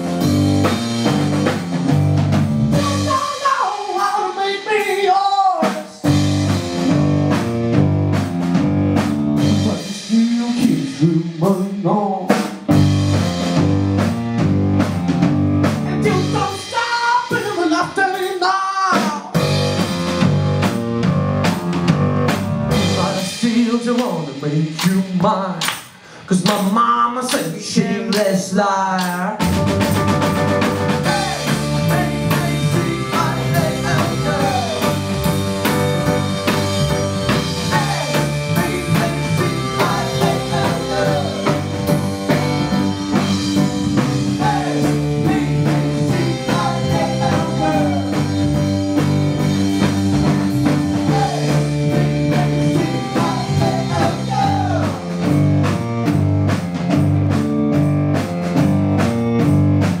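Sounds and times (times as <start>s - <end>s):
bass line: 0.0s - 25.6s, 27.8s - 60.0s
drum kit beat: 0.0s - 60.0s
electric guitar: 29.4s - 60.0s.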